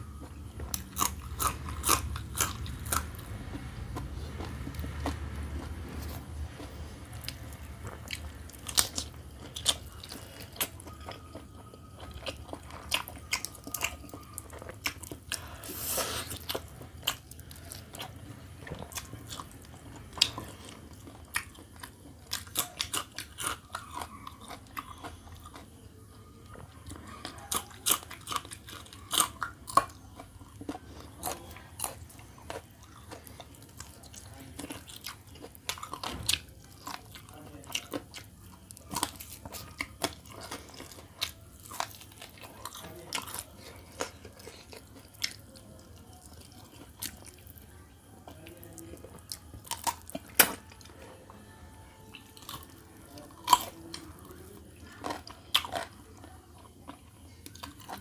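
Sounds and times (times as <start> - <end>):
person chewing with mouth clicks: 0.1 - 25.7.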